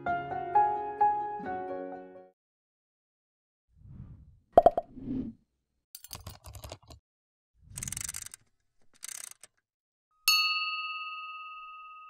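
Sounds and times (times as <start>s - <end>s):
rapid mechanical clicks: 7.7s - 9.6s.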